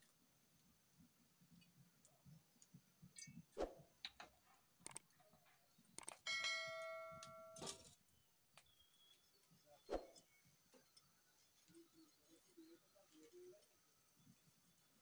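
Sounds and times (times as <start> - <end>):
metal pot ringing like a bell: 6.3 - 7.7.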